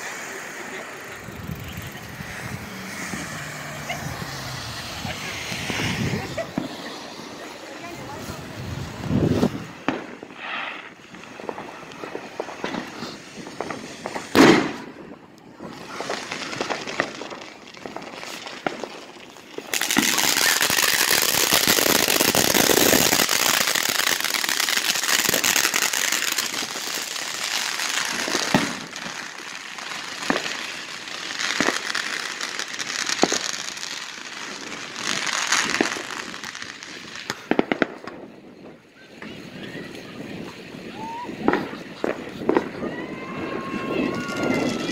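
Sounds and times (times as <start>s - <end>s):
fireworks crackling: 0.0s - 44.9s
firework bang: 1.4s - 18.9s, 19.6s - 27.0s, 27.7s - 30.6s, 33.1s - 33.6s
sharp firework pops: 9.0s - 18.9s, 28.0s - 29.2s, 30.2s - 30.6s, 31.5s - 31.9s, 33.1s - 33.5s, 37.2s - 39.4s, 41.4s - 42.8s.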